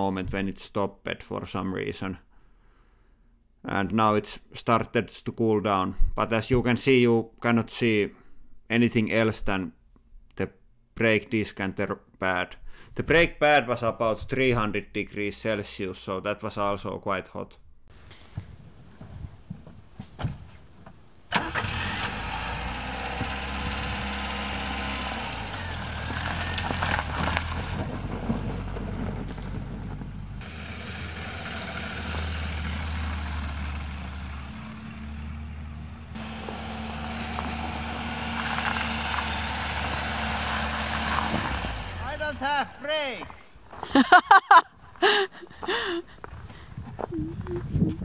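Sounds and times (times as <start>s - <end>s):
car engine starting and running: 21.3s - 42.6s.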